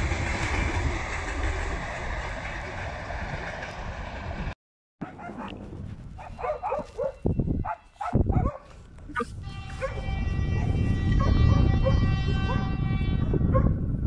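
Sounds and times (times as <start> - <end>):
freight train wheels rumbling: 0.0 - 7.1.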